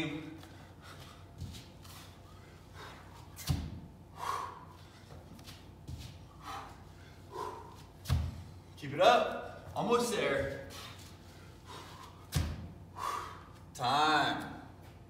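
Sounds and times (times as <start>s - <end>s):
thuds of feet and hands on mat: 7.9s - 8.6s, 12.2s - 12.8s.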